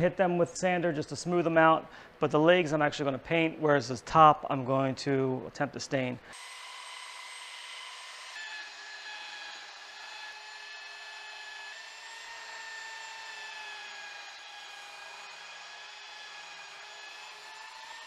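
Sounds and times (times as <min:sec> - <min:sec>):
belt sander on wood: 0:06.3 - 0:18.0.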